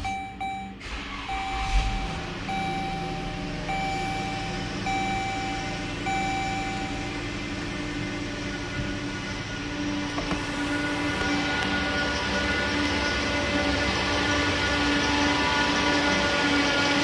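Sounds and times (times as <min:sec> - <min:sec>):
dashboard warning chime beeps: 0:00.0 - 0:07.2
car engine starting and idling: 0:00.0 - 0:17.0.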